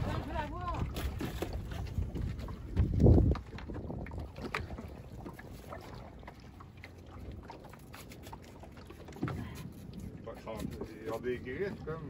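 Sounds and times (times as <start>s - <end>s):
wind buffeting microphone: 0.0s - 6.5s
water lapping at boat hull: 0.0s - 12.0s.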